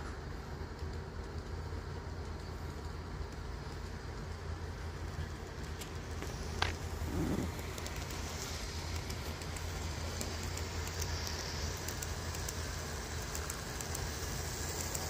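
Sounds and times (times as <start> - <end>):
model train motor humming: 0.0 - 15.0.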